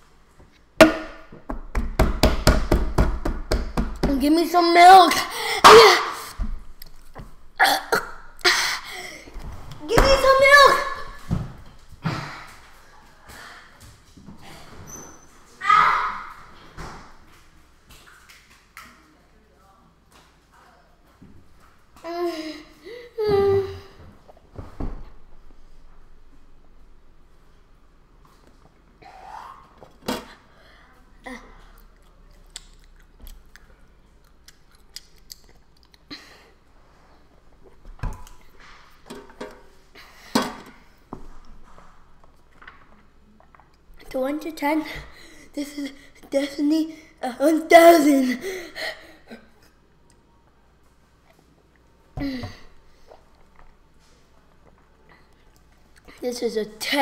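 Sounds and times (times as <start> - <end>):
child vocal sound: 22.0 - 24.0
lip and mouth noises: 31.6 - 36.1.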